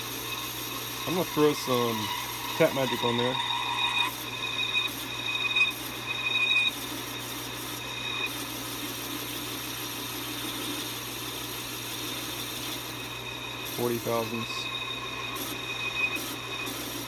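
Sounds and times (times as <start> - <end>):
high squeal of cutter: 0.0 - 6.9, 13.1 - 17.0
metal lathe cutting: 0.0 - 17.0.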